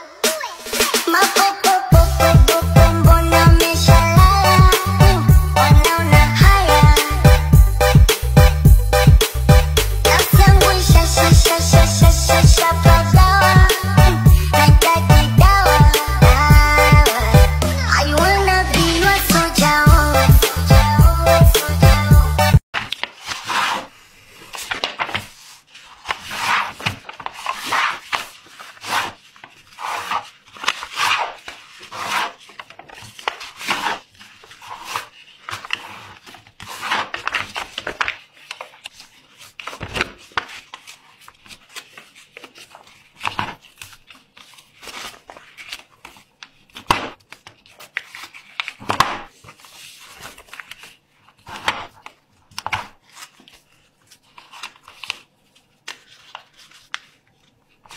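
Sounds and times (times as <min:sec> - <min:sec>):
paper folds being creased: 0:22.8 - 0:57.9
paper rustling and sliding: 0:22.8 - 0:57.9.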